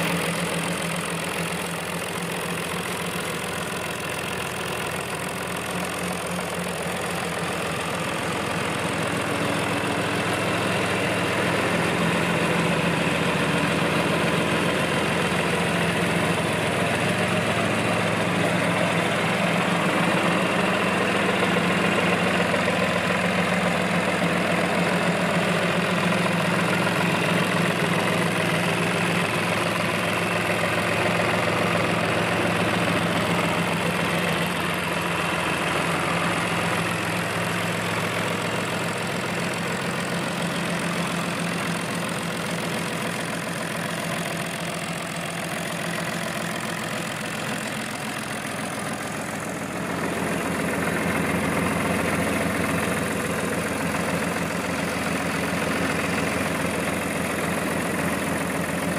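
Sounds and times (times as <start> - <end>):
tractor diesel engine idling: 0.0 - 58.9.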